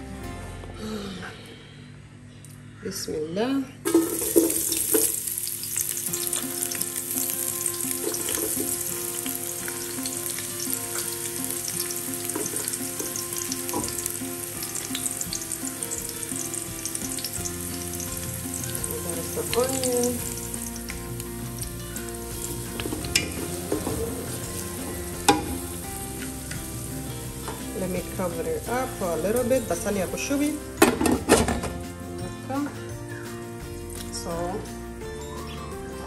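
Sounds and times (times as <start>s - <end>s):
onions sizzling in hot oil: 3.8s - 31.1s.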